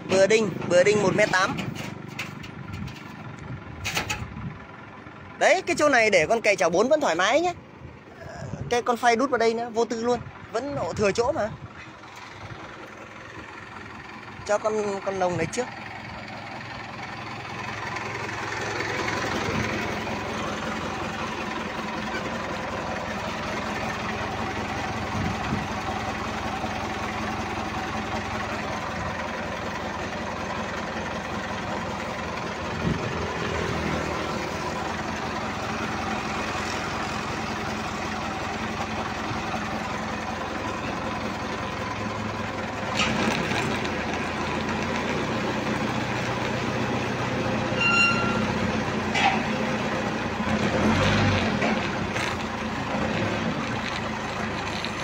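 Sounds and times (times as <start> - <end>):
forklift engine running: 0.0 - 55.0
metal clanks: 0.1 - 4.4, 47.7 - 49.7.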